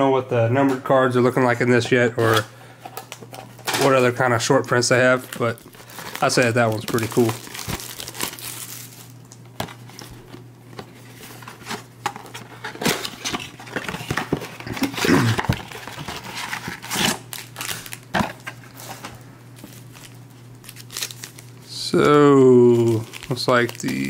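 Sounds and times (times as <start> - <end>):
cardboard rustling: 9.6 - 21.3.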